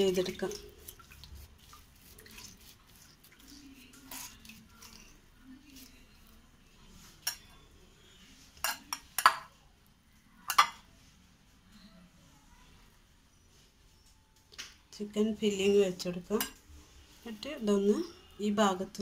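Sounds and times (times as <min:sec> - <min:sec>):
metal spoon clinking glass bowl: 0:07.2 - 0:07.7, 0:08.6 - 0:09.5, 0:10.4 - 0:10.8.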